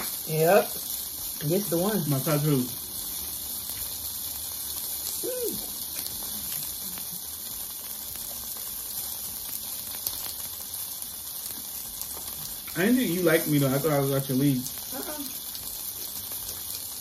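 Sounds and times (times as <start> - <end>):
sausages sizzling in a pan: 0.0 - 17.0
person humming: 5.2 - 5.7.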